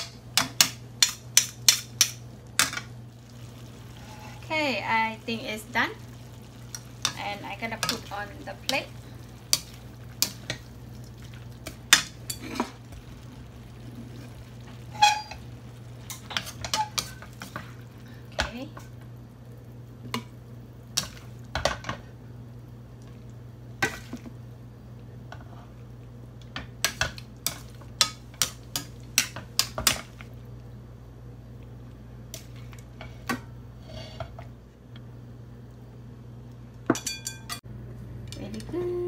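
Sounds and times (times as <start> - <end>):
spatula scraping metal pan: 3.9 - 4.4, 14.9 - 15.4.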